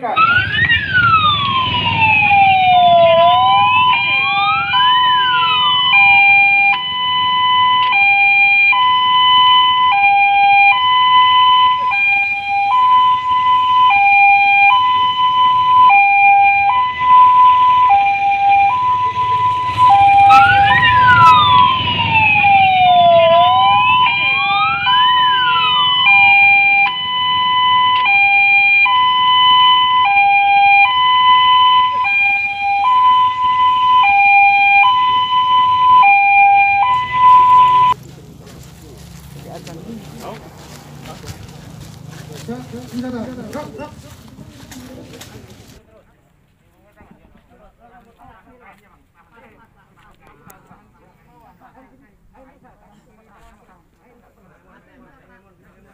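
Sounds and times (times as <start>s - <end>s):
siren wail sweeping up and down: 0.0s - 38.0s
two-tone hi-lo siren: 0.0s - 38.0s.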